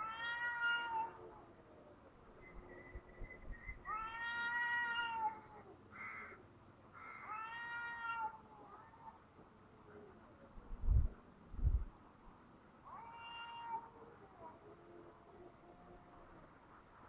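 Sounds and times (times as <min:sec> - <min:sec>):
cats yowling: 0:00.0 - 0:01.5, 0:03.9 - 0:05.8, 0:07.2 - 0:09.2, 0:12.8 - 0:16.4.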